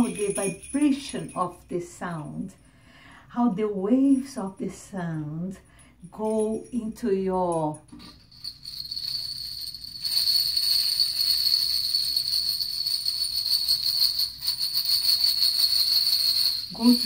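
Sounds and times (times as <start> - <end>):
jingle bells shaken: 0.0 - 1.8, 6.0 - 7.0, 7.8 - 17.0.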